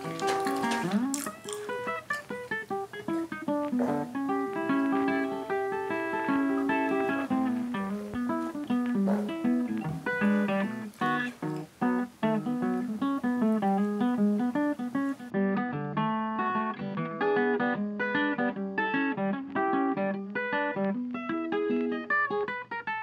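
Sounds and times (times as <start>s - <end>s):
acoustic guitar picking: 0.0s - 23.0s.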